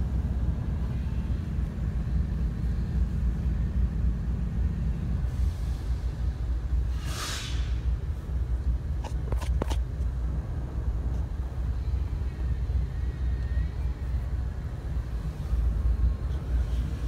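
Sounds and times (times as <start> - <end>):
freight train rumbling past: 0.0 - 9.2, 9.8 - 17.0.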